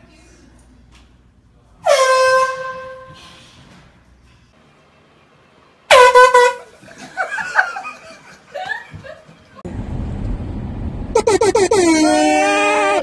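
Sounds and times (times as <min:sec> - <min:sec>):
air horn blast: 0:01.8 - 0:03.3, 0:05.9 - 0:06.7
low cabin rumble: 0:09.6 - 0:11.3
people yelling: 0:11.8 - 0:13.0.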